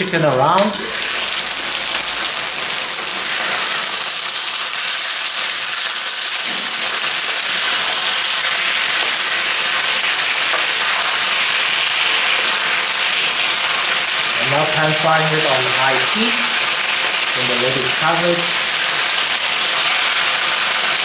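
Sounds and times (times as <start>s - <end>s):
chicken sizzling in hot oil: 0.0s - 21.0s
spatula turning food: 0.6s - 4.4s.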